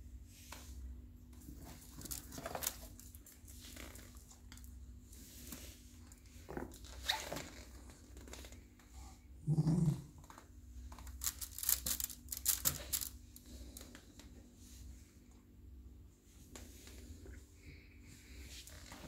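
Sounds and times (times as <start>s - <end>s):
toys rustling against wicker: 1.4s - 5.8s, 11.0s - 14.0s.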